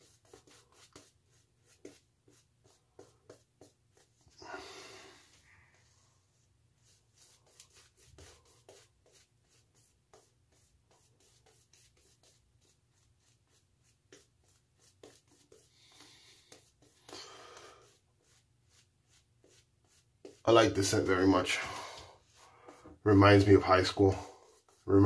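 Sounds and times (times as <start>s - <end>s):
shaving brush swishing on skin: 5.8s - 17.2s, 17.8s - 25.0s.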